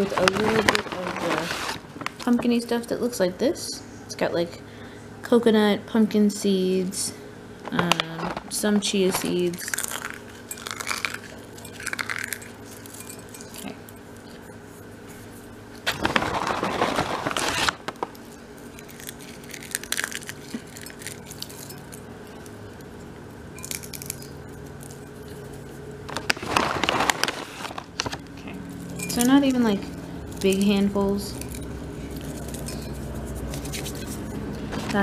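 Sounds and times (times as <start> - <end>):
rustling rush: 0.1 - 2.2
seeds clinking in glass bowl: 9.2 - 14.1, 18.6 - 22.6, 23.5 - 25.4, 28.8 - 29.6, 30.3 - 34.2.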